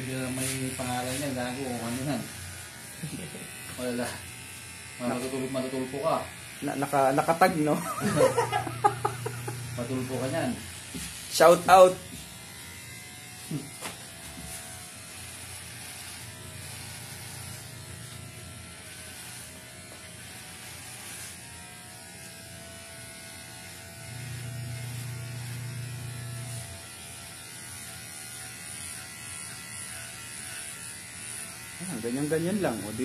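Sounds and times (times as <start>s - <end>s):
electric hair clippers buzzing: 0.0s - 33.0s.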